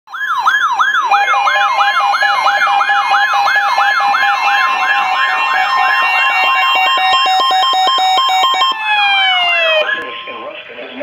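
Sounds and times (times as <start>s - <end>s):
siren-like alarm sweep: 0.1s - 10.9s
beeping alert tones: 3.8s - 8.8s.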